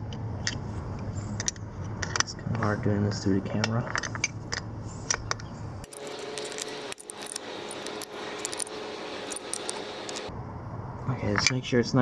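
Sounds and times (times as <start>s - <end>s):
wrench clicking on nuts: 5.8s - 10.3s.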